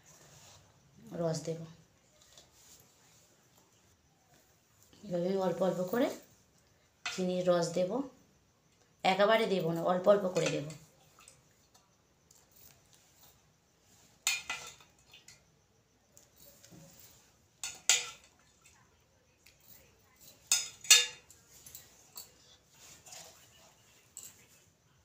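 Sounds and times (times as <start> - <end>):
spoon clinking on steel bowl: 20.2 - 22.4.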